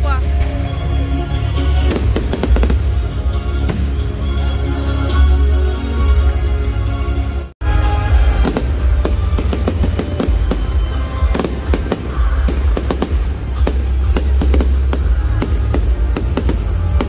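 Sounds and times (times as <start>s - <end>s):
music playing: 0.0s - 17.0s
fireworks bangs and crackles: 1.7s - 4.7s, 8.2s - 17.0s.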